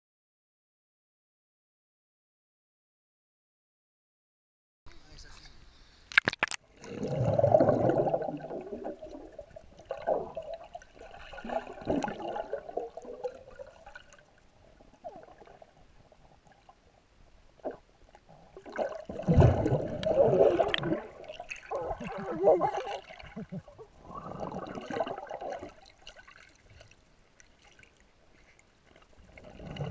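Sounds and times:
underwater gurgling and sloshing: 0:06.4 - 0:29.9.

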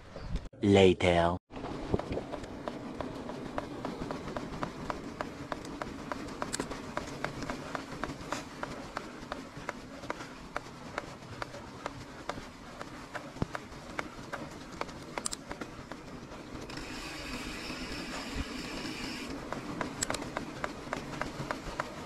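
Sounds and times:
bike tyres rolling on stone: 0:01.6 - 0:22.0
sharp ticks: 0:03.5 - 0:15.7, 0:16.7 - 0:21.9.

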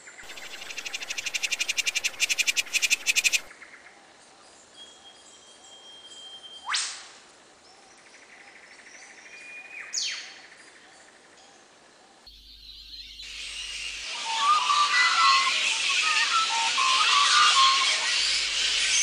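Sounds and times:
faint background bird chorus: 0:00.0 - 0:06.6, 0:07.4 - 0:14.6
bird whistle with whip-crack: 0:00.3 - 0:03.5, 0:06.6 - 0:07.2.

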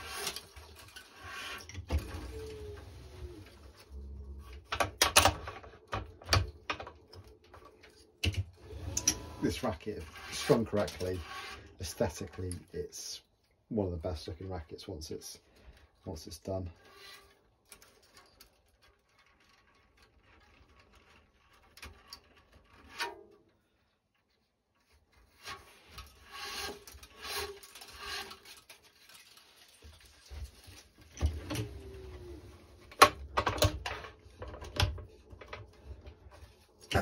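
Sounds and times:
string rubbing against racket strings: 0:08.8 - 0:12.8, 0:16.7 - 0:18.1, 0:24.2 - 0:31.0.

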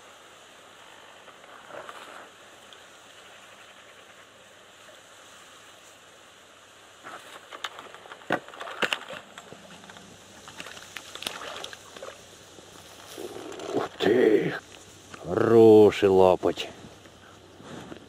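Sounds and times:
faint steady hiss: 0:00.0 - 0:18.0
fish splashing in water: 0:10.3 - 0:12.3.

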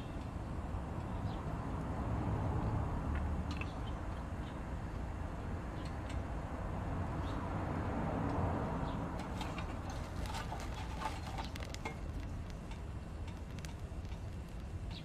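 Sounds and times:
low rumble of stove fire: 0:00.0 - 0:15.0
twigs crackling and popping: 0:09.2 - 0:15.0.

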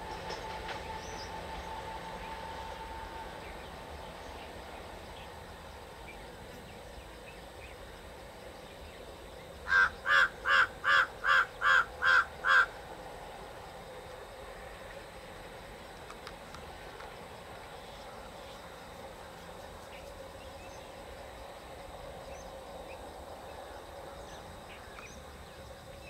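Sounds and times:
diesel train approaching: 0:00.0 - 0:26.0
crow cawing: 0:09.7 - 0:12.8.

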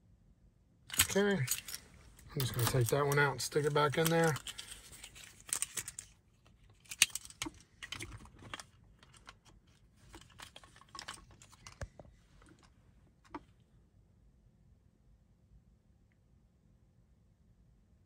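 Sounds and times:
car key and key ring rattling: 0:00.9 - 0:12.7.

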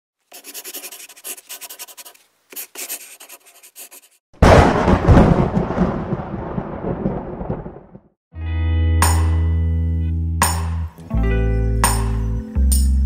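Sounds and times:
pencil-like scratching strokes: 0:00.3 - 0:04.2.

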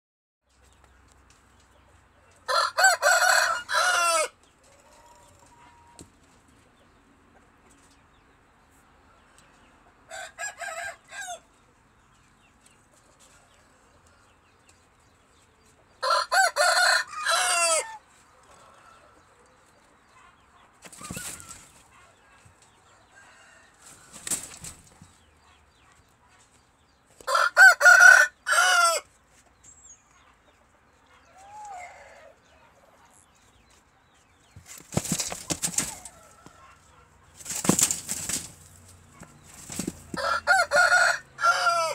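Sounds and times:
rooster crowing: 0:02.5 - 0:04.3, 0:10.1 - 0:11.4, 0:16.0 - 0:18.0, 0:27.3 - 0:29.0, 0:40.2 - 0:41.9.

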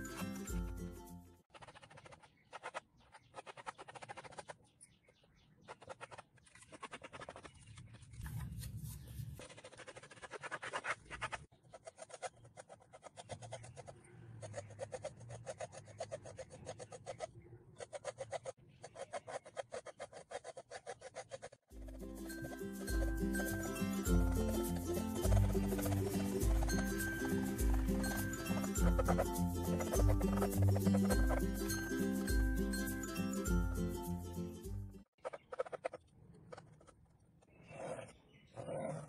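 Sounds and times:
cutlery scraping paint on canvas: 0:05.7 - 0:08.4, 0:09.3 - 0:23.9.

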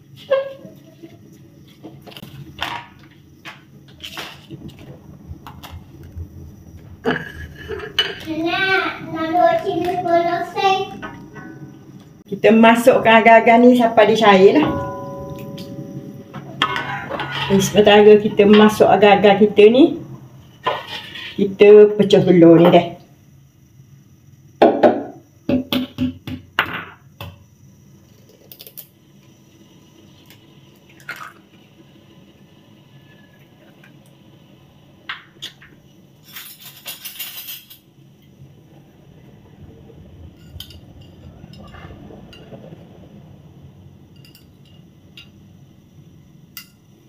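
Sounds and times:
low steady hum: 0:03.8 - 0:23.2, 0:37.6 - 0:47.0.

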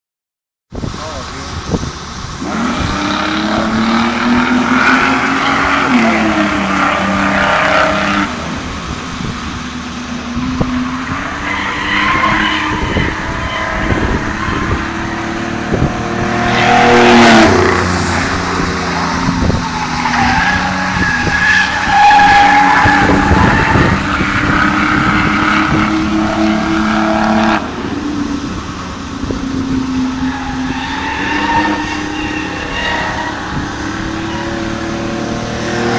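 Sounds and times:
race car engine passing: 0:01.1 - 0:35.9.

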